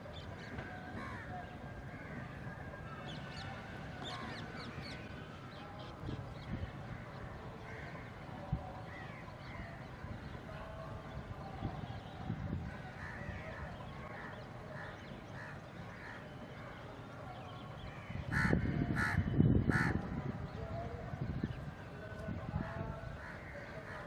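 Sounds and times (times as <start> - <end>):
crows cawing: 18.3 - 20.0.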